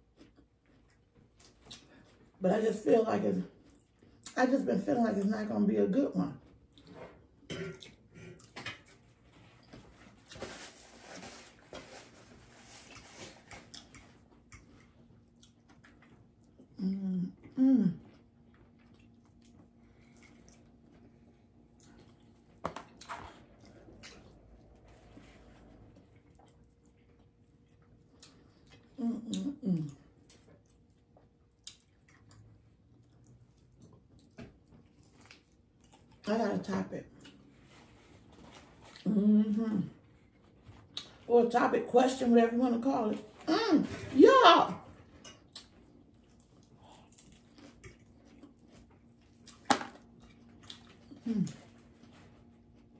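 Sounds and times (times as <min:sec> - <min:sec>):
chewing: 0:00.0 - 0:02.4, 0:06.4 - 0:10.6, 0:12.7 - 0:36.3, 0:37.1 - 0:39.2, 0:39.8 - 0:41.3, 0:45.0 - 0:52.9.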